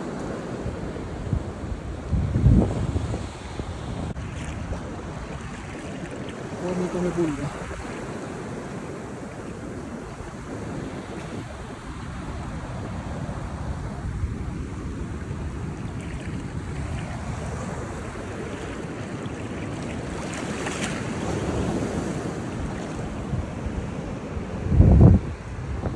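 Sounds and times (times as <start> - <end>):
wind on microphone: 0.5 - 25.9
small waves lapping: 3.3 - 12.4, 14.6 - 24.4
sea lion splashing: 15.9 - 21.5.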